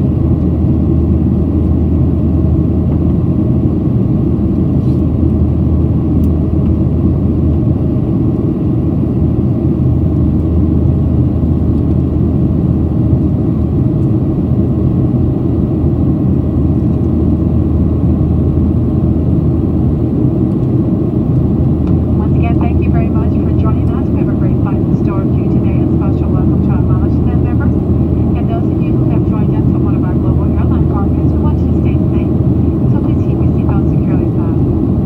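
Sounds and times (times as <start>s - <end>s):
airplane cabin engine rumble: 0.0s - 35.0s.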